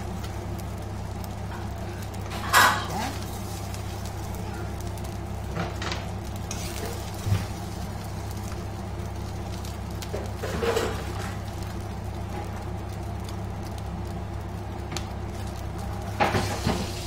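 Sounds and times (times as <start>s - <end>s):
low kitchen hum: 0.0s - 17.0s.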